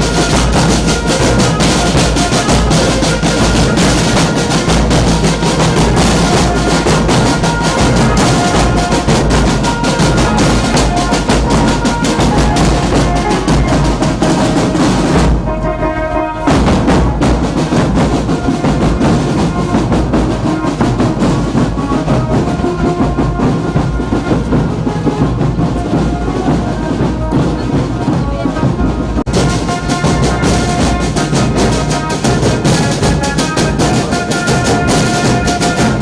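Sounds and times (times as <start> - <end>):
snare and bass drums: 0.0 - 36.0.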